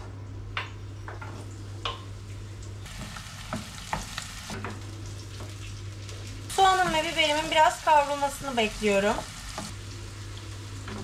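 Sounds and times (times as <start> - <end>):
vegetables sizzling in oil: 2.8 - 11.0
vegetables knocking into pan: 2.9 - 4.8
wooden spoon knocking on pan: 2.9 - 4.8.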